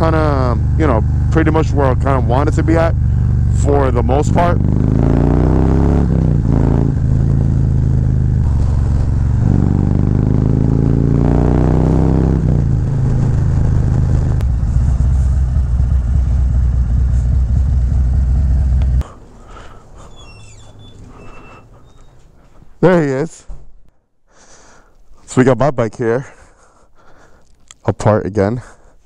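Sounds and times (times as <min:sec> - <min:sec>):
motorcycle engine revving: 0:00.0 - 0:19.1.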